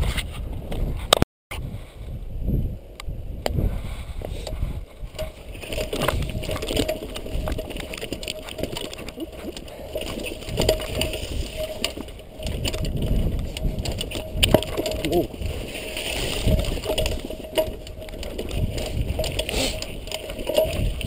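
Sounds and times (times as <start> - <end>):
jostled camera rumbling and rustling: 0.0 - 21.0.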